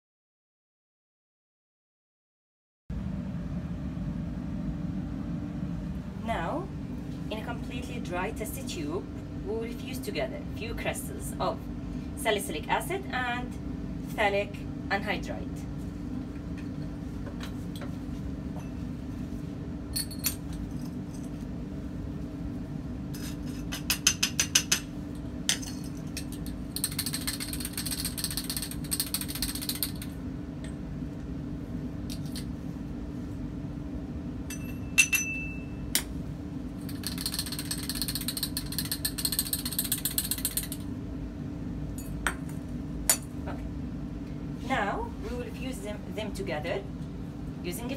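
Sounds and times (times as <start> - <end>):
steady low hum: 2.9 - 47.9
crystals rattling through funnel: 25.8 - 30.1, 36.8 - 40.8
bright glass clink: 34.5 - 35.8
glassware clinking: 34.5 - 35.8.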